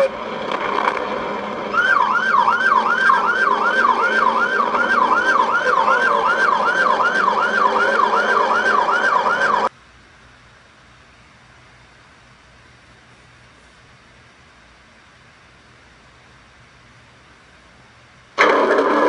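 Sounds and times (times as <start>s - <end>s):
police siren yelping: 1.7s - 9.7s.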